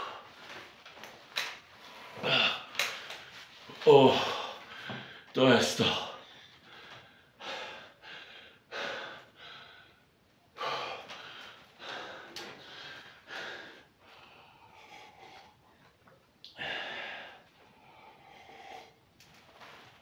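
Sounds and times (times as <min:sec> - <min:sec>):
man breathing hard: 0:01.8 - 0:05.3, 0:06.1 - 0:15.9, 0:16.5 - 0:19.9.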